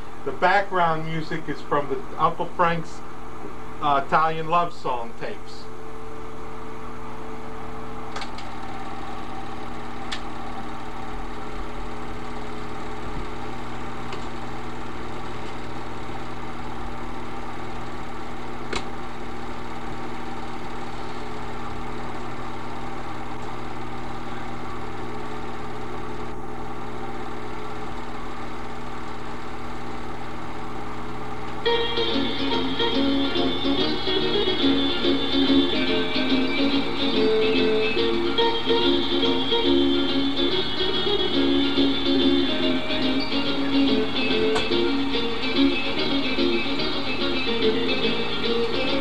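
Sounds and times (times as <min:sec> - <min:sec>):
film projector whirring: 0:00.0 - 0:49.0
faint projector clicks: 0:08.1 - 0:08.7, 0:18.7 - 0:19.0
music: 0:31.6 - 0:49.0.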